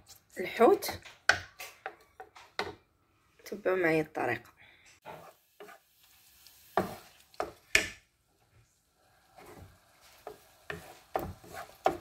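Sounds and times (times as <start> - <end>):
wooden spatula scraping a pan: 5.0 - 7.8, 9.1 - 12.0.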